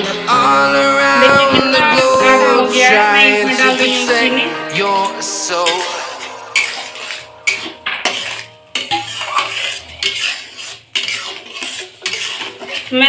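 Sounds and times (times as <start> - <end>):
metal spoon scraping a pot: 3.5 - 13.0.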